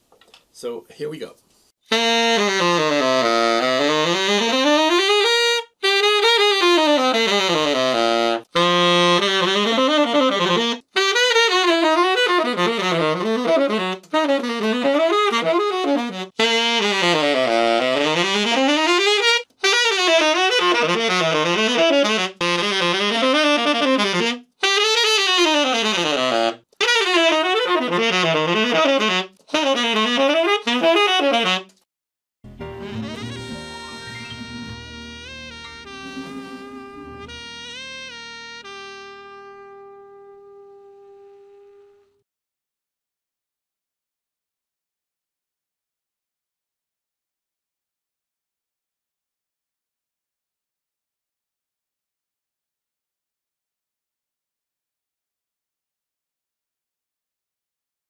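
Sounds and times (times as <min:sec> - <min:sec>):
tenor saxophone jazz runs: 0:01.9 - 0:31.8, 0:32.5 - 0:42.2.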